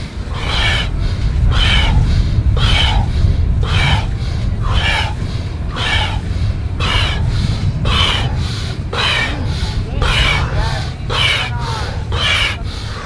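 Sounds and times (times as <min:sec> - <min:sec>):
forceful deep breathing: 0:00.0 - 0:13.0
low rumble: 0:00.0 - 0:13.0.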